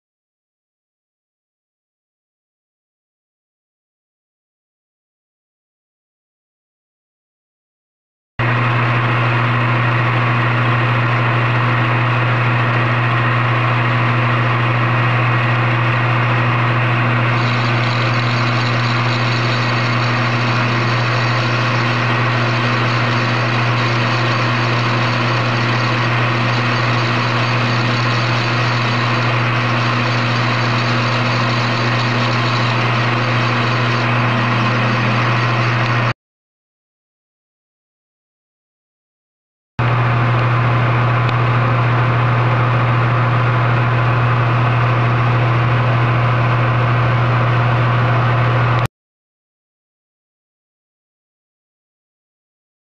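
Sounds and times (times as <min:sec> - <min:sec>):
metal lathe humming: 0:08.4 - 0:36.1.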